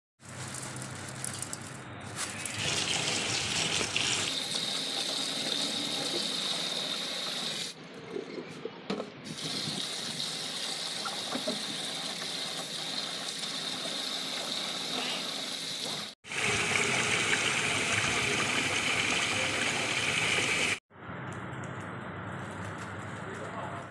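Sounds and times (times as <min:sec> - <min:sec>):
dry rice rattling into a bowl: 0:00.2 - 0:02.6
tap water running into a bowl: 0:02.5 - 0:07.8, 0:09.3 - 0:20.8.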